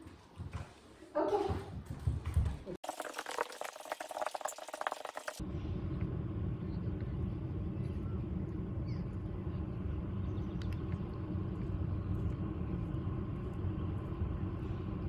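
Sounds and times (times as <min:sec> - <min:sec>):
low outdoor rumble: 0:04.3 - 0:15.0.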